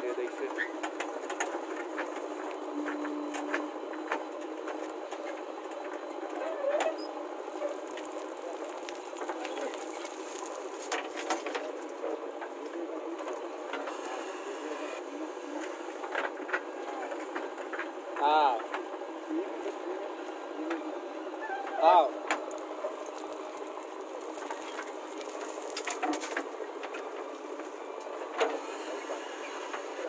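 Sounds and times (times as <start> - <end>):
backhoe engine and hydraulics clattering: 0.0 - 30.0
bucket digging and dumping soil: 7.5 - 11.8, 22.8 - 27.5.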